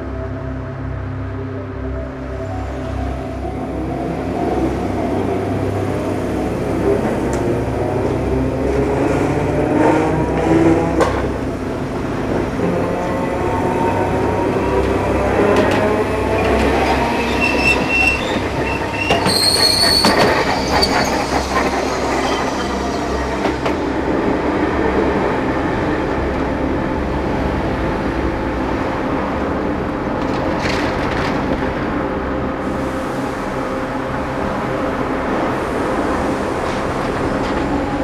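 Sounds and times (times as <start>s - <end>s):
tram running rumble: 0.0s - 38.0s
tram wheels squealing on rails: 12.2s - 24.3s.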